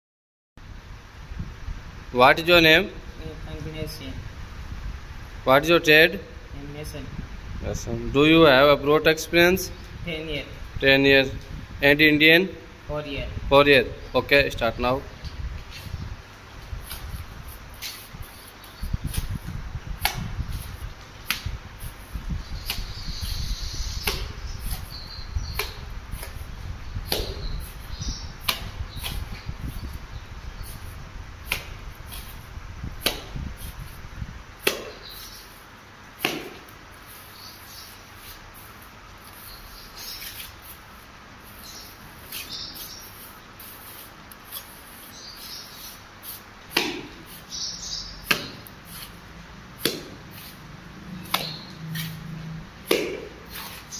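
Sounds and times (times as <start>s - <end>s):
trowel scraping mortar: 53.5s - 53.9s.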